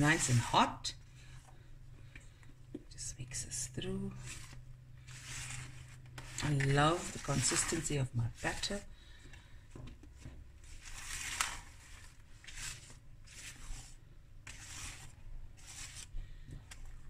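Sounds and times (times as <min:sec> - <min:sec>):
spatula scraping batter in bowl: 0:12.4 - 0:16.1.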